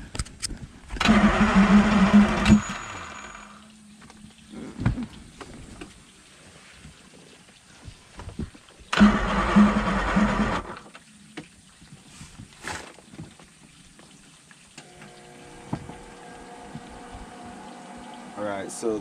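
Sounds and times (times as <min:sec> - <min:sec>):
outboard engine cranking: 0:01.0 - 0:03.6, 0:08.9 - 0:10.9.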